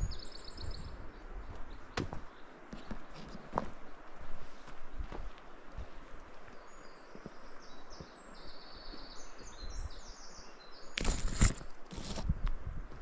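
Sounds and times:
faint footsteps on forest floor: 1.0s - 9.8s, 11.0s - 13.0s
branches rustling: 10.9s - 12.4s.

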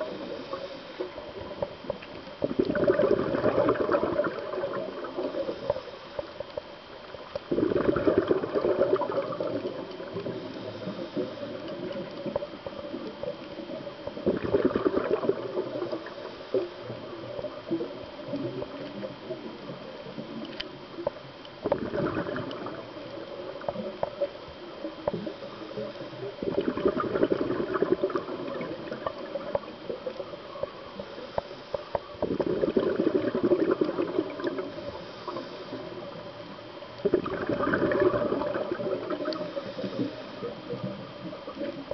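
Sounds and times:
quiet hiss between breaths: 0.0s - 41.9s
regulator exhaled bubbles: 2.4s - 5.9s, 7.5s - 12.0s, 14.2s - 16.2s, 21.6s - 23.7s, 26.4s - 29.8s, 32.2s - 36.0s, 37.0s - 40.2s.

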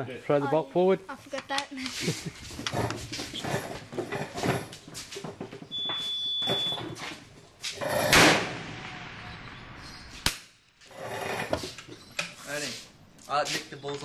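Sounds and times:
rifle shot: 8.1s - 10.5s.

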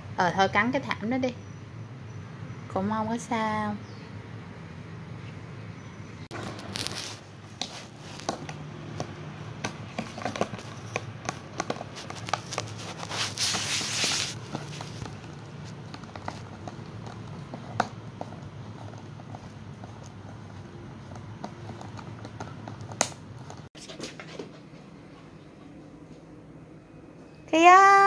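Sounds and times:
puppy gnawing on plastic: 6.3s - 24.3s.

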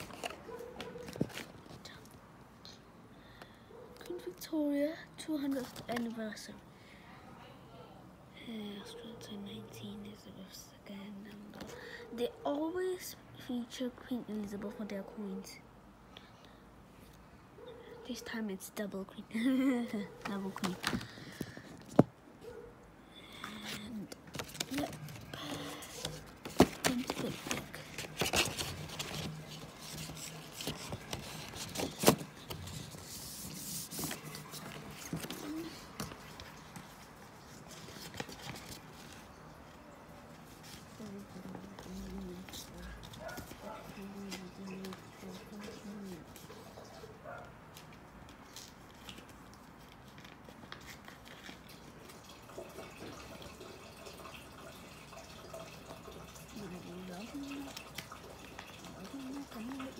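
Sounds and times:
rubbing and scraping packaging: 0.0s - 2.0s, 23.5s - 39.5s, 40.3s - 47.1s.

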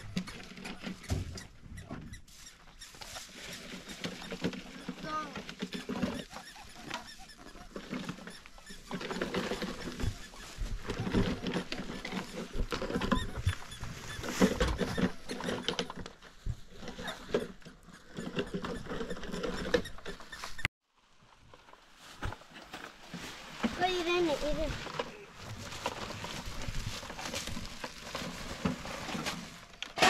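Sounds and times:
plastic bags rustling: 21.6s - 30.0s.

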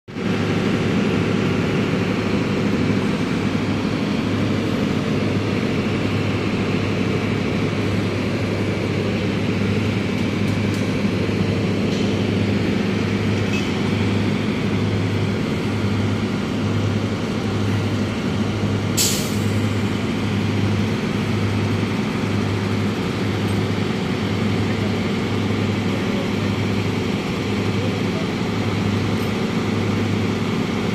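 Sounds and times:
heavy machinery humming: 0.1s - 30.9s
sharp hiss: 19.0s - 19.6s.

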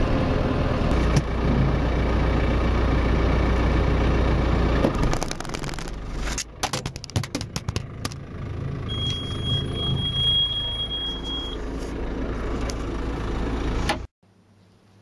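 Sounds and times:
tractor engine running: 0.0s - 14.1s
high warning beep: 8.9s - 11.6s.

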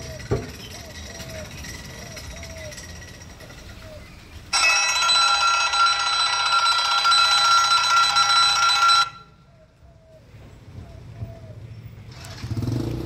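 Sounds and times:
level crossing warning bell: 0.0s - 9.5s.

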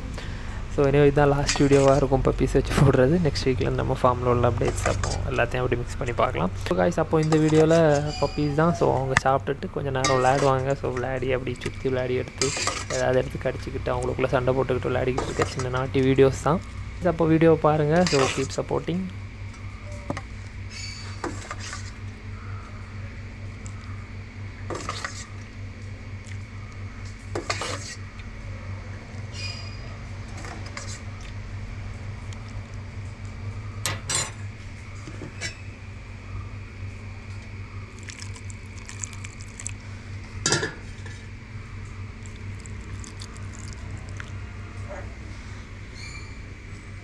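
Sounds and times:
steady low hum: 0.0s - 47.0s
metal bowls and spoon clinking: 10.0s - 11.1s.

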